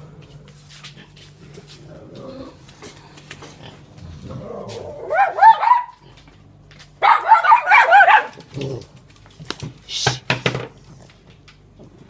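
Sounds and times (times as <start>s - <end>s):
small dog barking: 5.0s - 6.1s, 7.0s - 8.5s.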